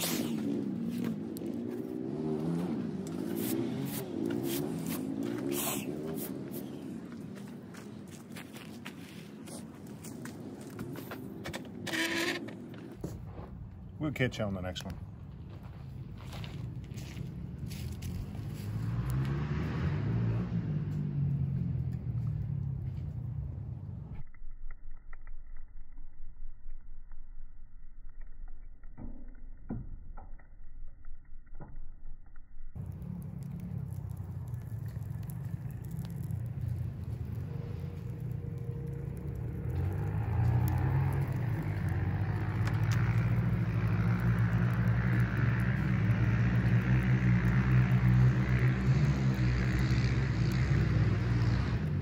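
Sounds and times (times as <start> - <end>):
fire burning in metal stove: 0.0 - 15.8, 32.8 - 52.0.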